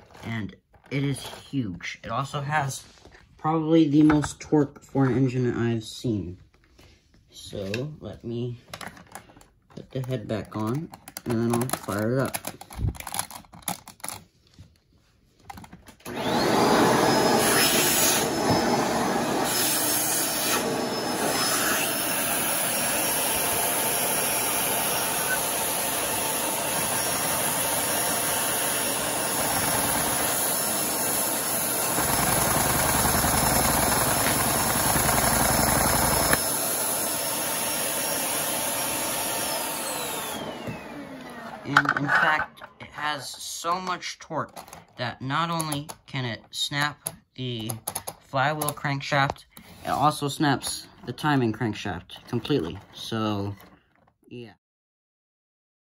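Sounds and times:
vacuum cleaner motor whine: 0:16.0 - 0:42.0.

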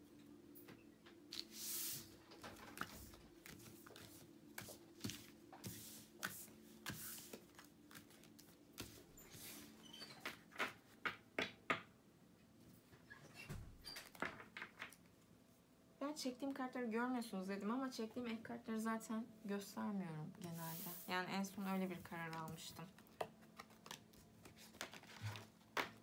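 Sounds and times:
faint steady hum: 0:00.0 - 0:09.9
cards being shuffled: 0:02.6 - 0:10.8, 0:22.2 - 0:26.0.

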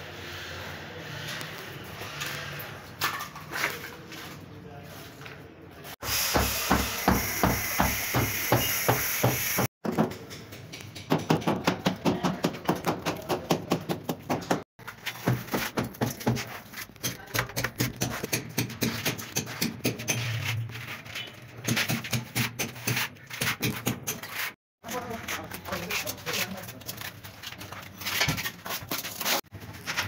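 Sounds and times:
trowel tapping and scraping adhesive: 0:06.4 - 0:20.5, 0:21.3 - 0:24.6.

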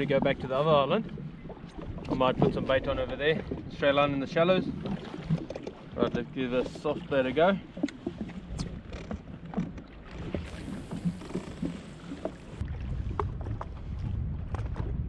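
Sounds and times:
water lapping against hull: 0:00.0 - 0:15.0
low rumble: 0:10.5 - 0:15.0.

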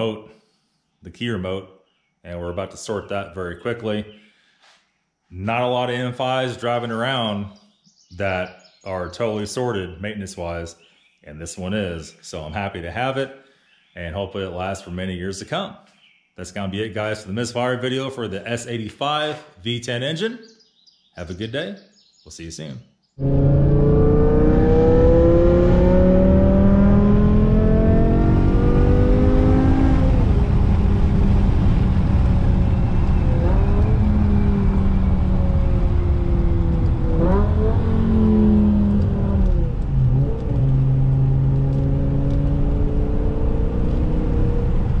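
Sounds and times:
car engine accelerating: 0:23.2 - 0:45.0.

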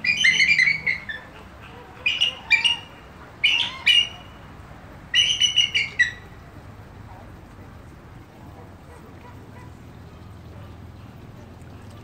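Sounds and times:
eagle piping chitter calls: 0:00.0 - 0:04.5, 0:05.1 - 0:06.3.

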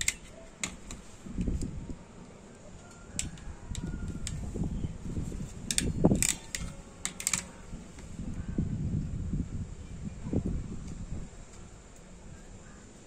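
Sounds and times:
ratchet crimping tool clicking: 0:05.7 - 0:07.5.

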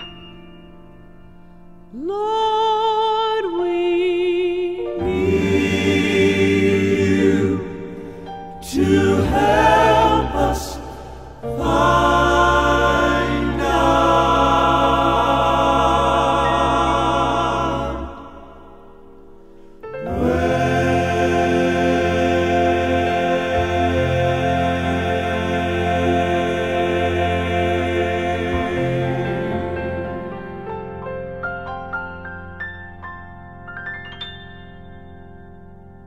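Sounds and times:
male quartet singing in harmony: 0:03.4 - 0:18.8, 0:20.0 - 0:30.8
musical accompaniment: 0:03.6 - 0:36.0.

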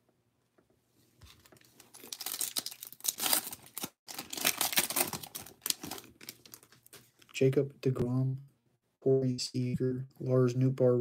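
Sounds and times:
plastic wrapper tearing and crinkling: 0:01.3 - 0:07.2.

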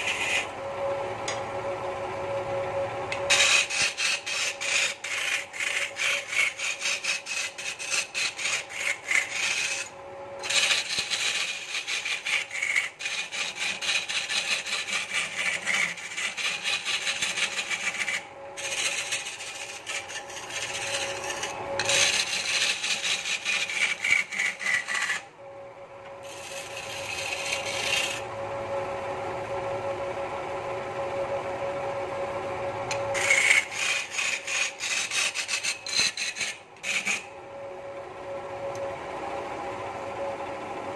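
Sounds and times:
turning tool rasping on wood: 0:00.0 - 0:00.5, 0:03.2 - 0:25.2, 0:26.2 - 0:28.2, 0:33.1 - 0:37.3
lathe motor humming: 0:00.0 - 0:40.9.

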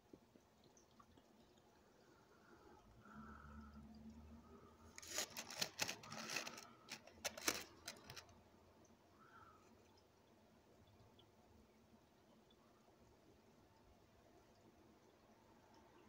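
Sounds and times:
phone handling scrapes and clicks: 0:05.0 - 0:08.3.

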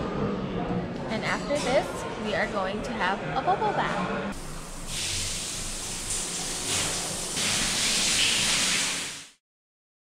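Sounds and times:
water spraying from shower head: 0:04.4 - 0:09.4.

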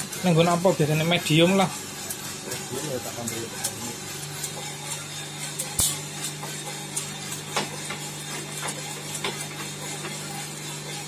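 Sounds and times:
coffee roaster humming: 0:00.0 - 0:11.0
coffee beans cracking: 0:03.3 - 0:10.6.

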